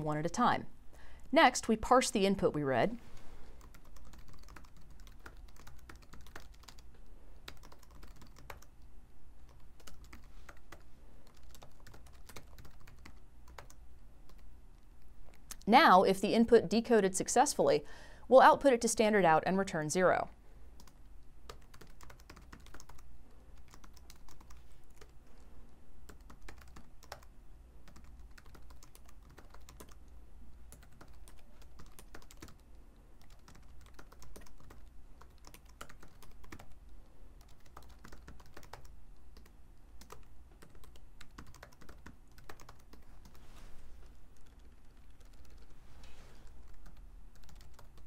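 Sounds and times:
computer keyboard typing: 3.6 - 8.8, 9.4 - 14.5, 20.8 - 25.2, 26.0 - 43.4, 44.3 - 45.8, 46.5 - 48.0.

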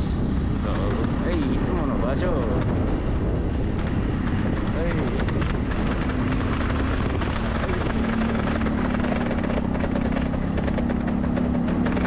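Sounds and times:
motor scooter engine humming: 0.0 - 12.0
wind buffeting microphone: 0.0 - 12.0.

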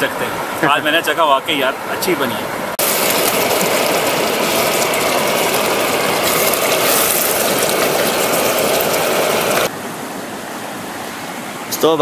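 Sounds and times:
food sizzling and bubbling: 2.7 - 9.7.

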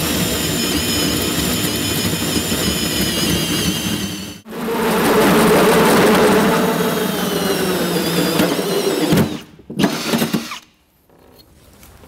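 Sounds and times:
drill hole saw cutting metal: 0.0 - 4.4, 7.0 - 10.7.

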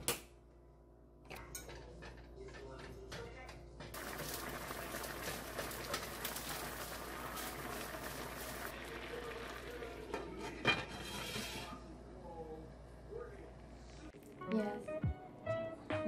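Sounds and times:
rice sizzling in frying pan: 4.0 - 10.2.

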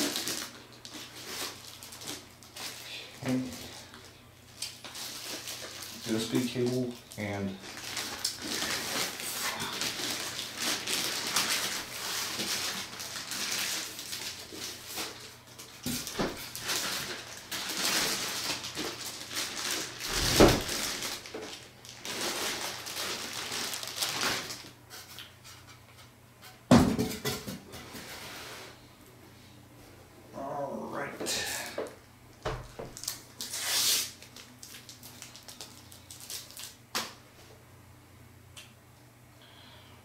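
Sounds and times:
plastic wrapping crinkling: 0.0 - 25.3, 32.7 - 37.1
styrofoam packing rubbing: 7.6 - 24.8, 33.0 - 34.5.

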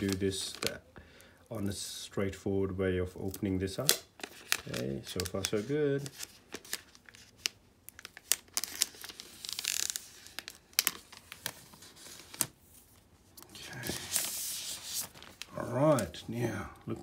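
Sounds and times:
protective wrap crinkling and tearing: 0.0 - 0.8, 3.3 - 12.6.

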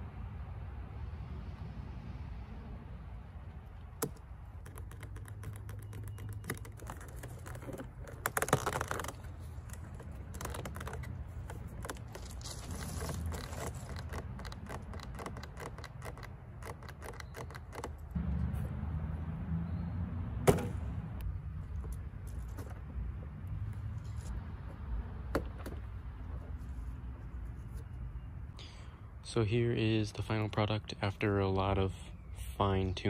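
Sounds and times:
plastic scraping: 4.0 - 18.1.

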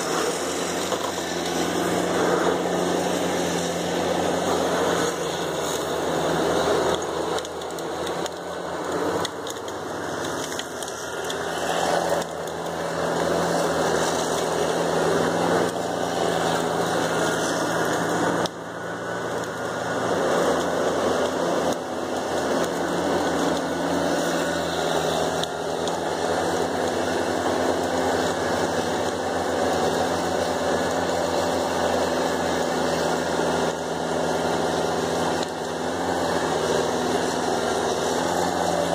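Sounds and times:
branches crackling under machine: 0.0 - 38.9
diesel engine droning: 0.0 - 38.9.

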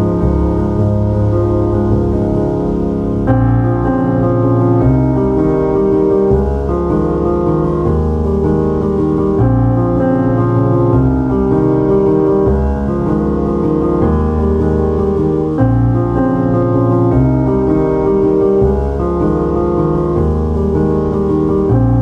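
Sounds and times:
slow piano music: 0.0 - 22.0.

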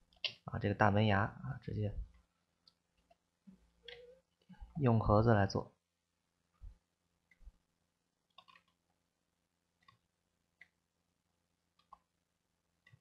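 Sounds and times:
computer mouse clicks: 8.3 - 8.8, 9.8 - 10.0, 11.7 - 12.1.

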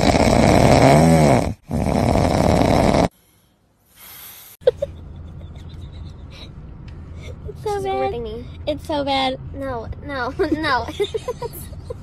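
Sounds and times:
man snoring loudly: 0.0 - 3.2.

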